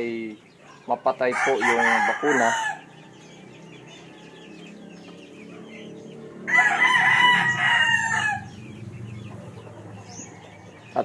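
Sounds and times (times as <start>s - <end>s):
rooster crowing: 1.3s - 5.0s, 6.4s - 8.8s.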